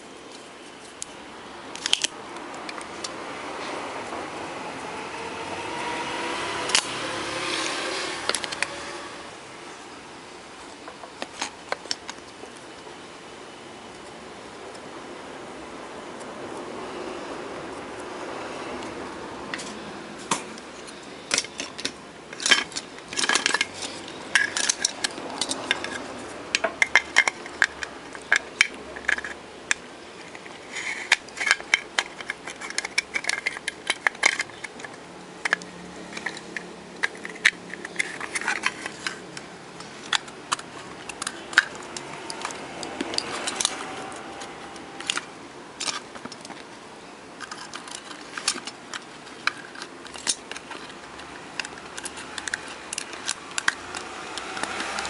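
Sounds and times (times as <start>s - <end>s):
plastic and metal parts clicking: 1.8s - 3.2s, 19.6s - 46.7s, 47.4s - 55.0s.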